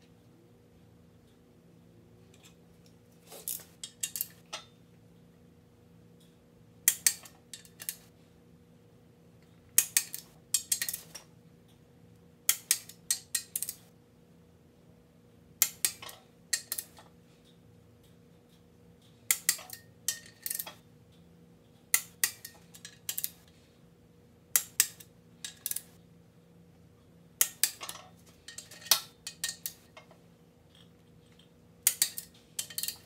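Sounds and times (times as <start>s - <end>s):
wrench ratcheting on bolts: 31.8s - 33.0s.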